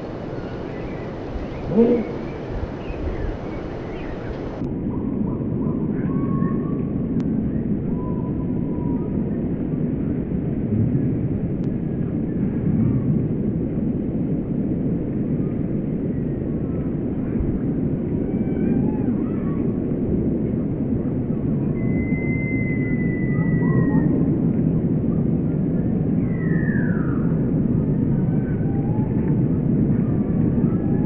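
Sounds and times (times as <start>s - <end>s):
small birds calling: 0.0s - 4.6s
low background rumble: 0.0s - 31.0s
long thin whistled note: 21.8s - 24.0s.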